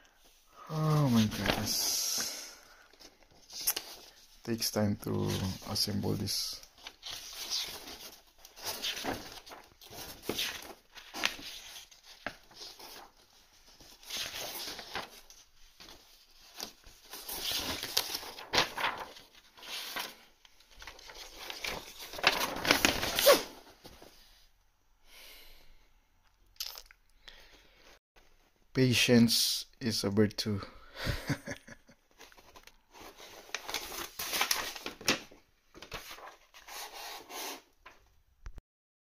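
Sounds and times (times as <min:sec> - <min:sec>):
packaging torn and crumpled: 0:17.2 - 0:20.0.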